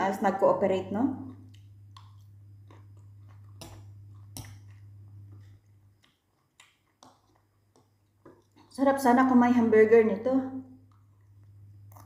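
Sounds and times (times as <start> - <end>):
faint chewing: 1.2 - 8.8, 10.8 - 12.0.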